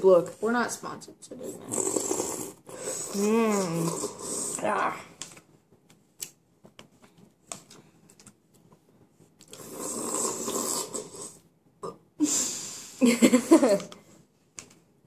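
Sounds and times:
loud slurping from a spoon: 1.6s - 4.6s, 9.5s - 11.4s.

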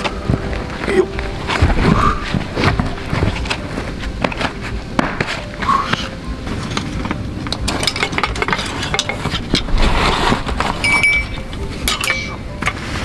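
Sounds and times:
backpack rustling: 0.0s - 7.2s
light metallic clinks and knocks: 6.6s - 9.7s, 10.8s - 12.8s.

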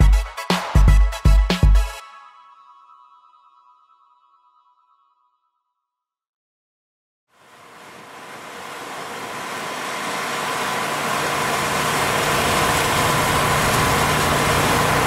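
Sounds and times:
pressure washer engine running: 7.6s - 15.0s.

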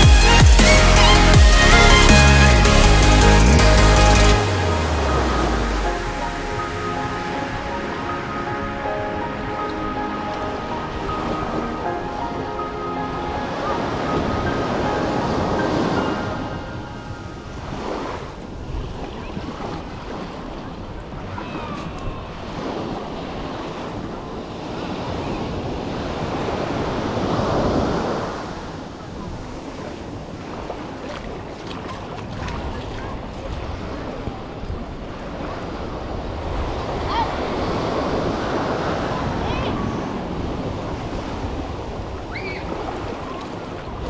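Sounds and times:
small waves breaking on beach: 4.5s - 44.0s
wind buffeting microphone: 13.6s - 44.0s.

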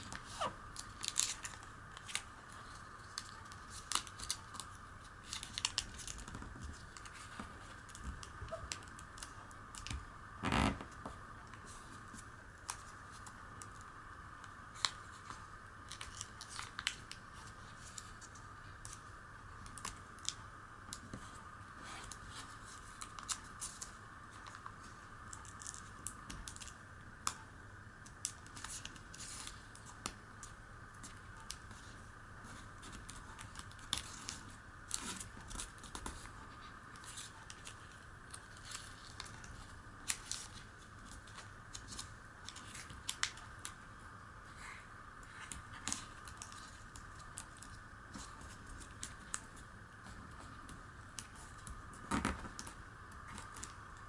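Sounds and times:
paper folding and creasing: 0.0s - 13.8s
faint background hum: 0.0s - 54.0s.

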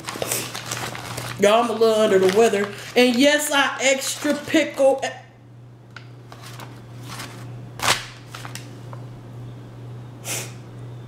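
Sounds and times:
paper and foil wrapper crinkling: 0.0s - 5.1s, 6.3s - 8.8s.

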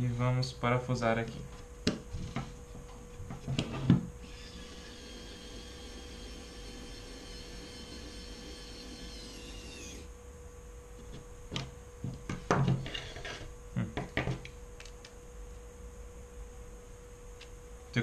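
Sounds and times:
electric screwdriver whine: 4.2s - 10.1s.

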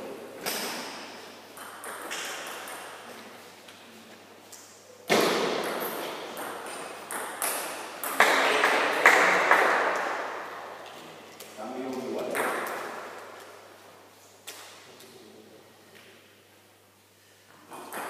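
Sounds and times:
table tennis ball pinging: 1.5s - 3.0s, 5.1s - 8.8s, 17.7s - 18.0s.

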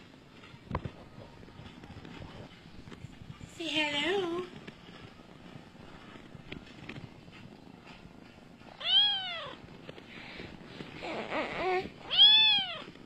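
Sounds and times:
cat meowing: 8.8s - 9.6s, 11.1s - 12.9s.

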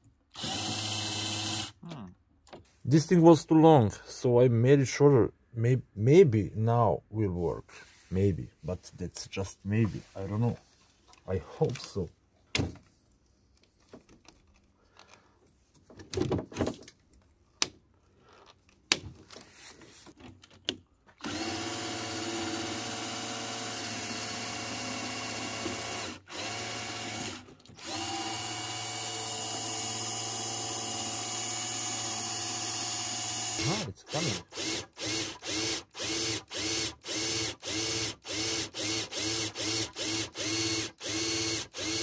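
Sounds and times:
cordless drill spinning pump: 0.3s - 1.8s, 21.2s - 42.0s.

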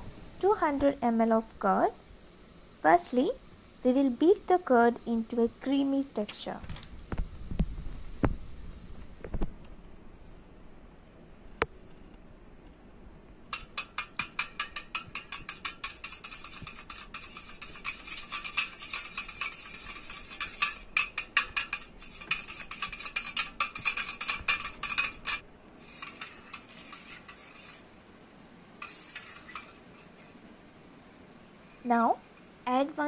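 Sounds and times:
whisk clicking against metal bowl: 13.5s - 27.8s, 28.8s - 30.1s.

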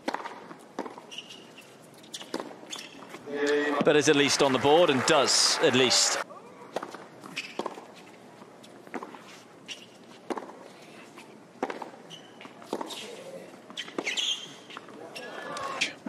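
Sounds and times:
tennis ball struck by racket: 0.0s - 1.0s, 6.7s - 7.9s, 8.9s - 9.2s, 10.3s - 10.6s.

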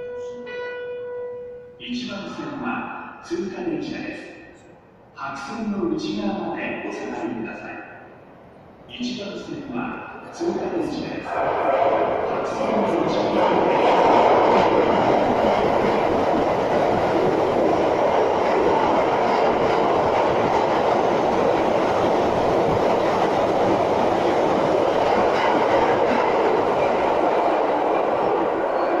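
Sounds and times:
train wheels on rails: 11.3s - 29.0s.

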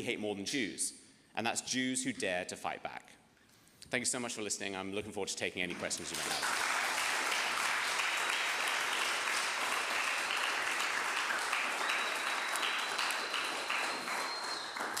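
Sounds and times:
audience applauding: 5.8s - 15.0s.

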